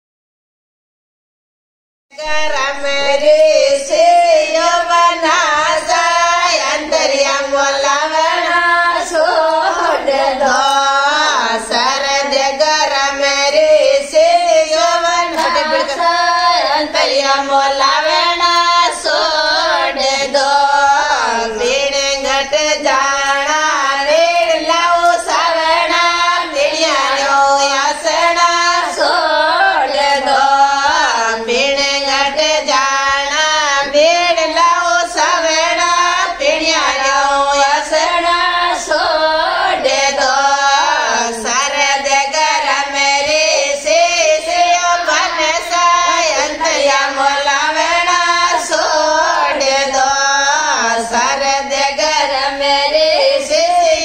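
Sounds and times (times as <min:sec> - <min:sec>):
women singing folk song: 0:02.1 - 0:54.0.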